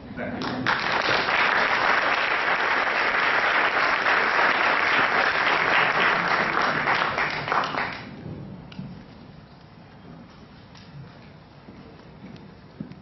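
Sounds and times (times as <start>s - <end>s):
audience applauding: 0.4s - 8.2s.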